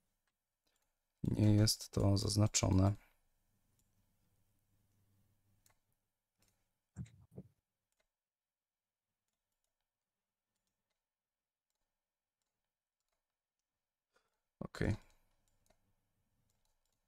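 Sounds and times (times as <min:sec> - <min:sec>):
computer mouse clicks: 0:10.5 - 0:11.0, 0:14.9 - 0:15.8, 0:16.5 - 0:17.0.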